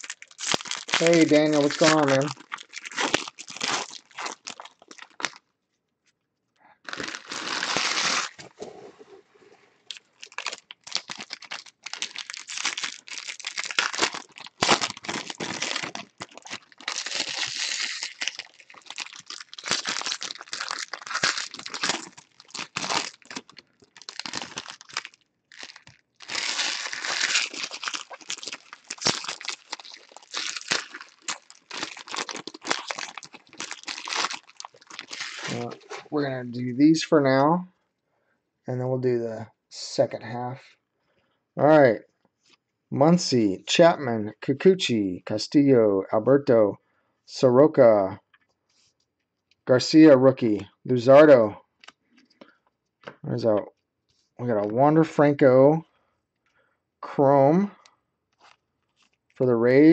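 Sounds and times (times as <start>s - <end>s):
plastic wrappers torn and crinkled: 0.0s - 5.4s, 6.8s - 8.4s, 9.9s - 35.9s, 58.3s - 59.4s.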